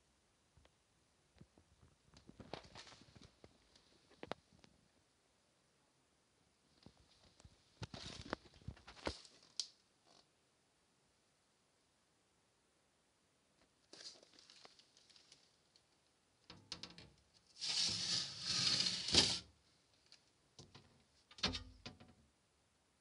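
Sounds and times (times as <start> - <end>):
rustling and scraping: 2.2 - 4.4, 6.8 - 9.6, 16.5 - 22.1.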